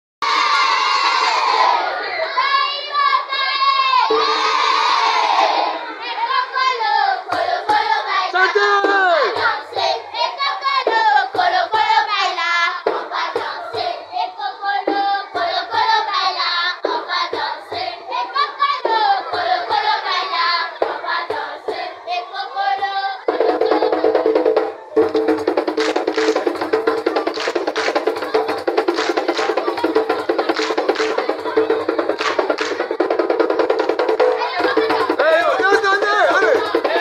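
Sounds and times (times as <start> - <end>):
children singing in chorus: 0.2 - 8.6, 9.2 - 35.2
hand clapping: 25.0 - 33.1.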